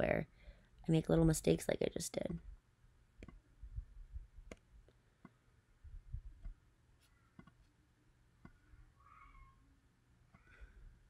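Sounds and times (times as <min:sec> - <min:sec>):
soft low thumps: 0:03.2 - 0:04.6, 0:05.8 - 0:06.6.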